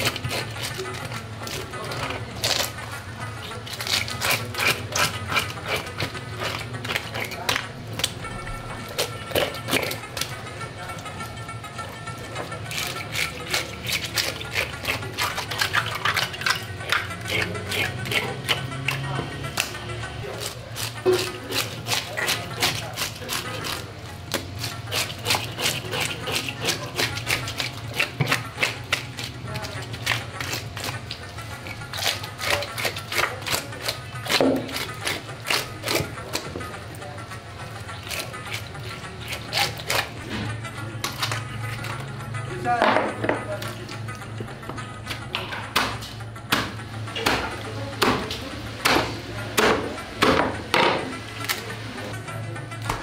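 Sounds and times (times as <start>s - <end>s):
knife scraping fish scales: 0.0s - 8.2s, 8.9s - 10.4s, 12.6s - 19.0s, 20.3s - 36.5s, 37.8s - 40.2s, 41.0s - 42.0s
knife chopping onto wooden board: 45.7s - 51.1s.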